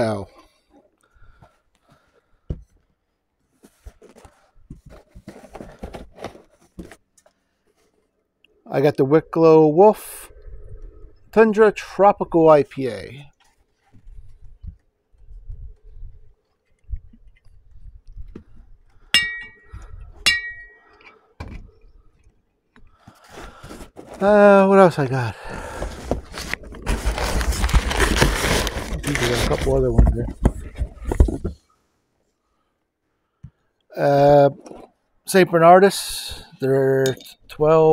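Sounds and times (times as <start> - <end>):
cardboard packaging rustling: 3.5 - 8.0, 23.1 - 24.3, 25.4 - 31.6
bottles knocking: 19.2 - 20.8.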